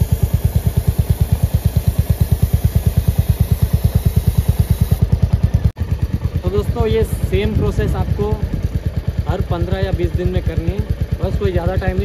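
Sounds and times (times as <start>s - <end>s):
lube spray hiss: 0.0s - 5.1s
motorcycle engine idling: 0.0s - 12.0s.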